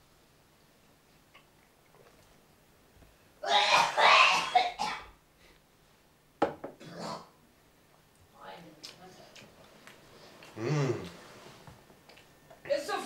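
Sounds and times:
person coughing: 3.5 - 5.1.

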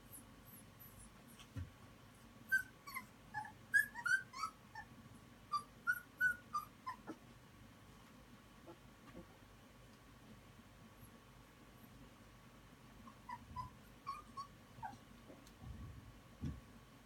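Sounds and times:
puppies squeaking and yipping: 2.5 - 4.9, 5.5 - 7.2, 13.1 - 15.0.

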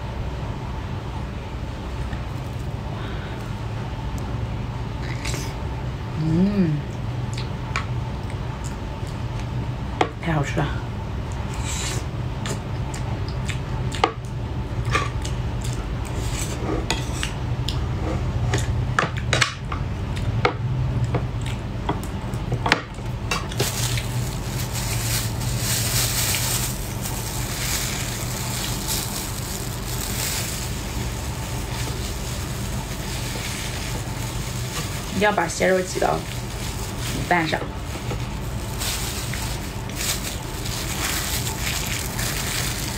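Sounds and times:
eating noises: 7.2 - 7.6
gloved hand squishing food: 23.0 - 42.9.

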